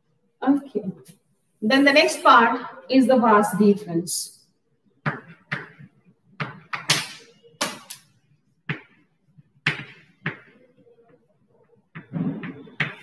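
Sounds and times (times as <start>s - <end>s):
chalk tapping and scraping on blackboard: 5.0s - 7.8s.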